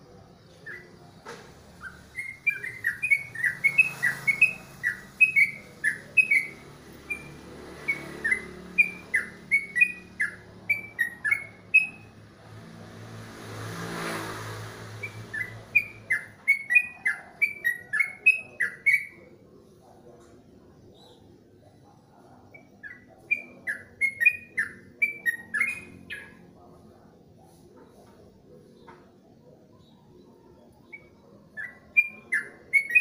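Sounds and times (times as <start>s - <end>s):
bulbul chirping song: 0.0s - 12.2s, 15.0s - 19.6s, 20.8s - 27.0s, 29.7s - 33.0s
broad rushing noise: 12.2s - 16.0s.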